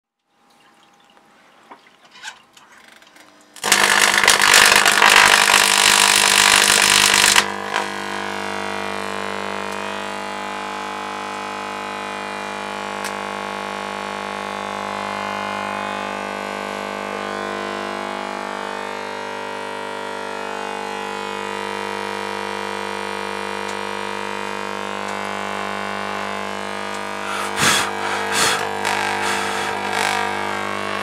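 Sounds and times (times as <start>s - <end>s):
steady buzzing hum: 2.8s - 31.0s
loud noisy rush: 27.2s - 30.6s.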